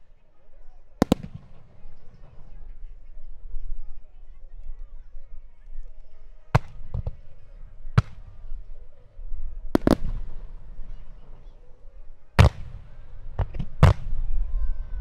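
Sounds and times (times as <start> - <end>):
small firework pops: 1.0 - 2.6, 6.5 - 8.7, 9.7 - 11.5, 12.4 - 14.2
firework shells bursting: 9.7 - 11.5.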